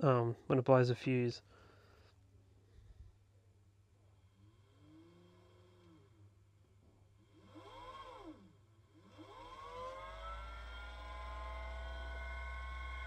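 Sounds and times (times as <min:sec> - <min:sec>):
low hum: 0:05.8 - 0:13.0
fan motor whining: 0:07.2 - 0:13.0.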